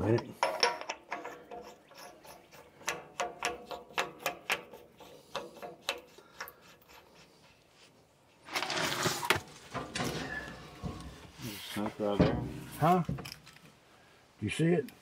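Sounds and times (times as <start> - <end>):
metal cap screwing clicks: 0.0 - 7.1.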